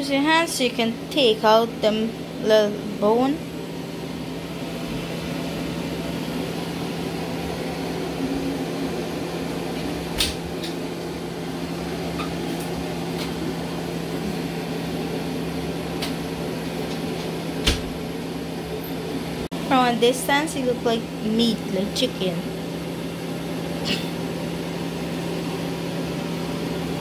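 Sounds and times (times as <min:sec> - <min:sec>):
kitchen appliance humming: 0:00.0 - 0:27.0.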